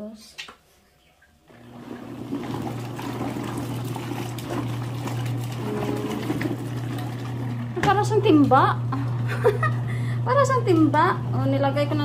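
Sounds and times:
water churning and sloshing: 1.2 - 8.6
washing machine motor hum: 1.3 - 12.0.

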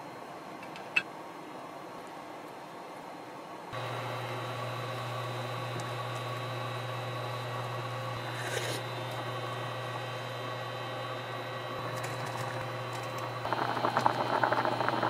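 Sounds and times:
cooktop electrical hum: 0.0 - 15.0
water bubbling in a pot: 11.8 - 15.0.

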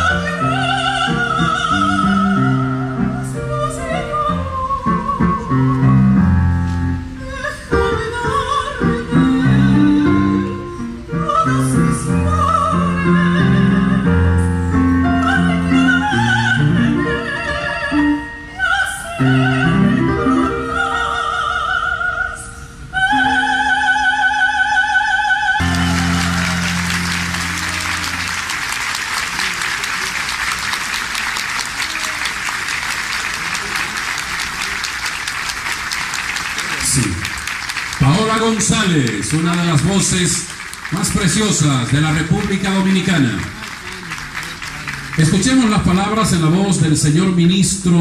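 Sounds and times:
piano accompaniment: 0.0 - 22.4, 25.5 - 33.3, 35.0 - 48.0
woman singing with vibrato: 0.0 - 28.4
applause: 25.6 - 46.4.

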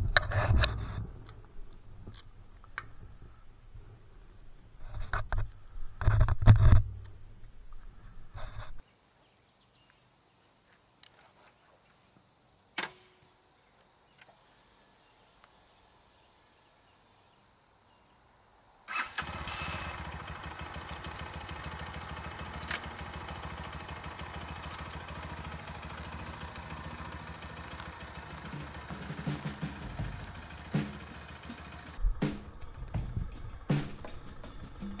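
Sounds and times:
motorcycle engine starting and idling: 18.9 - 35.0
quiet clicks: 22.0 - 26.0.

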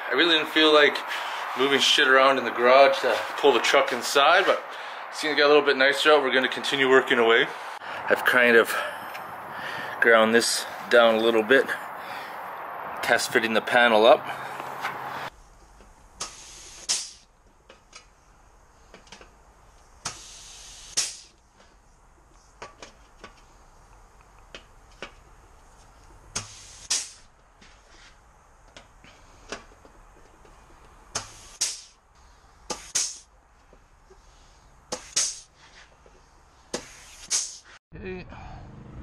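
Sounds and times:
air tool bursts on steel: 16.2 - 17.2, 20.0 - 21.3, 26.3 - 27.3, 31.1 - 32.0, 32.7 - 33.2, 34.9 - 35.5.

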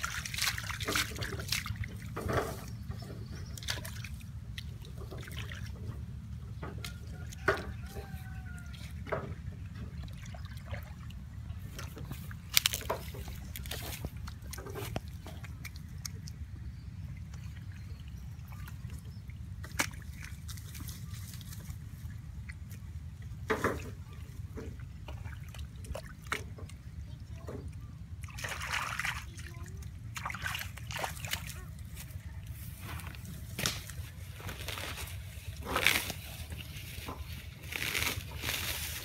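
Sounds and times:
hands splashing in water: 0.0 - 2.2.

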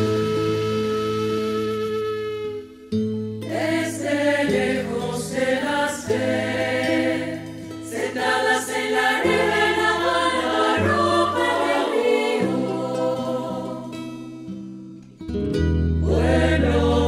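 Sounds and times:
women's choir singing: 3.5 - 14.2, 16.0 - 17.0.

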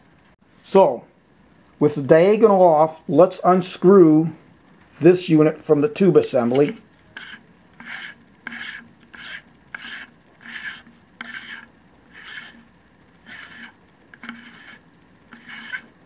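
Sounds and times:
threads scraping while unscrewing: 6.4 - 16.0.

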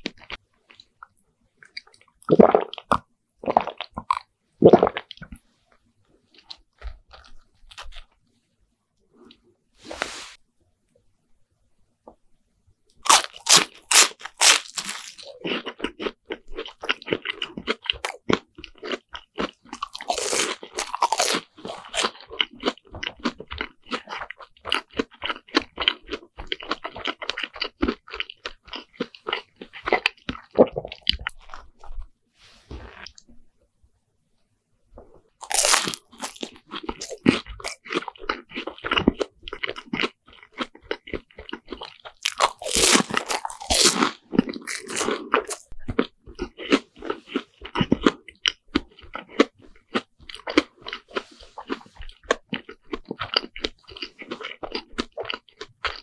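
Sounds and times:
chewing: 0.0 - 8.2, 13.0 - 32.1, 35.0 - 56.0
crunching bites of fried bread: 12.9 - 31.9, 35.4 - 56.0.

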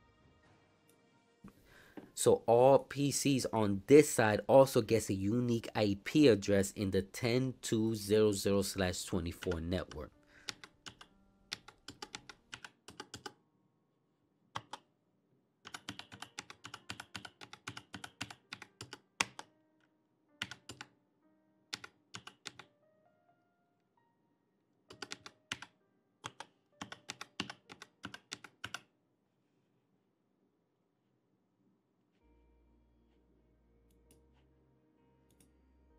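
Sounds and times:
faint background music: 0.0 - 13.7, 15.6 - 28.8, 32.2 - 35.9
typing on a computer keyboard: 9.3 - 13.4, 14.6 - 14.9, 15.6 - 19.5, 20.4 - 20.9, 21.7 - 22.7, 24.9 - 28.9.

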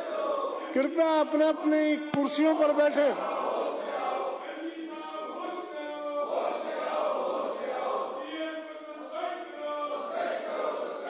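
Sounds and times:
group chanting slogans: 0.0 - 11.0.

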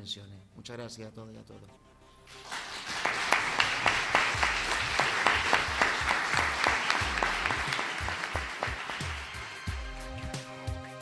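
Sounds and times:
audience applauding: 2.3 - 10.2.

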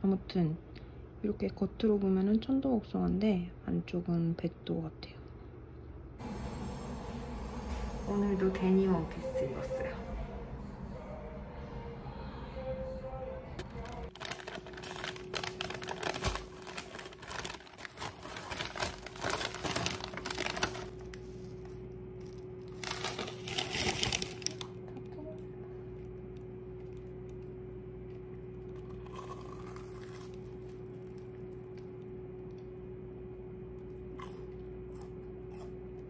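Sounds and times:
steady room hum: 0.0 - 36.0
food packaging crinkling: 13.6 - 32.1.

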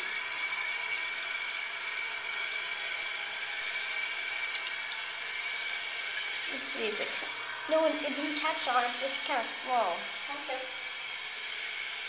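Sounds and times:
toilet tank refilling hiss: 0.0 - 12.0.

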